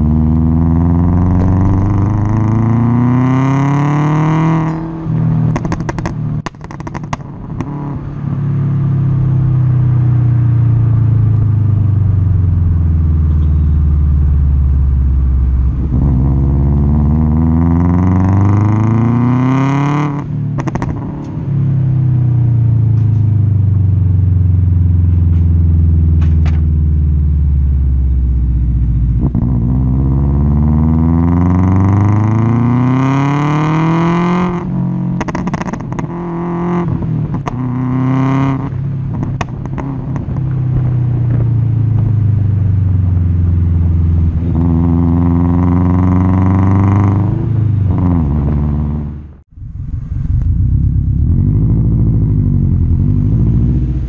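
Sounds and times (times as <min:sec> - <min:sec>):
car engine revving: 0:00.0 - 0:23.1, 0:23.7 - 0:54.0
exhaust pops and crackles: 0:01.2 - 0:03.4, 0:04.4 - 0:08.0, 0:20.6 - 0:21.4, 0:25.1 - 0:26.8, 0:35.2 - 0:36.2, 0:36.9 - 0:37.9, 0:38.6 - 0:43.3, 0:49.5 - 0:53.0.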